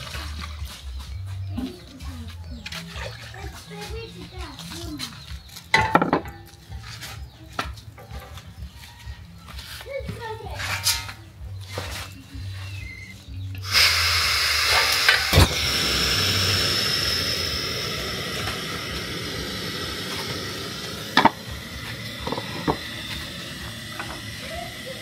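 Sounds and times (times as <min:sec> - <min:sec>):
pot or utensil knocks: 0:05.7 - 0:06.4
steam hissing with high whistle: 0:13.6 - 0:25.0.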